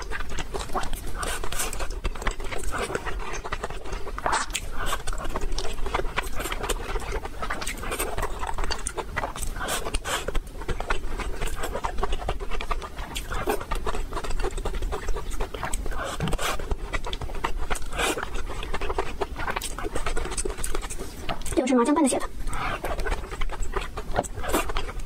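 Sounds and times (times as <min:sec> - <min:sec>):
close chewing with lip smacks: 0:00.0 - 0:25.0.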